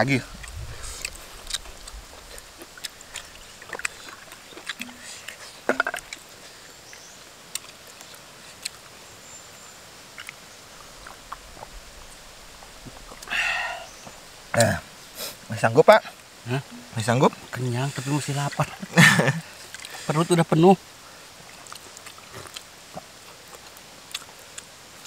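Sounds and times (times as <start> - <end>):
clay cups clicking and knocking: 4.7 - 6.2.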